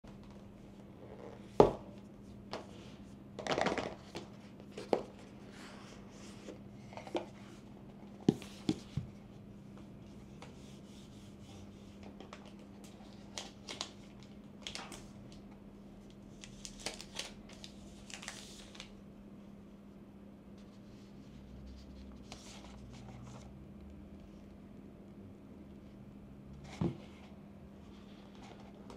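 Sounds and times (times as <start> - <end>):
faint steady hum: 0.0 - 28.9
plastic sleeve rustling: 16.3 - 18.9.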